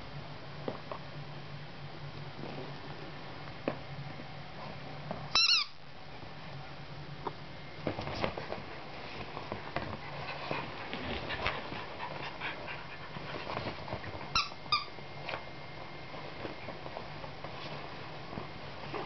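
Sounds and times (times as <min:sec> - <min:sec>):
short high squeaks: 0:05.4 - 0:05.8
paws and claws scratching: 0:07.8 - 0:14.3, 0:15.2 - 0:19.0.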